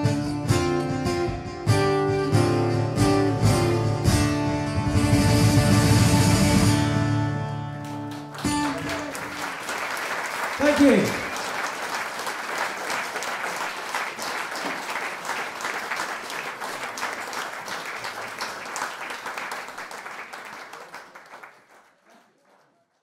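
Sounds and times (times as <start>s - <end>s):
audience applauding: 7.7s - 23.0s.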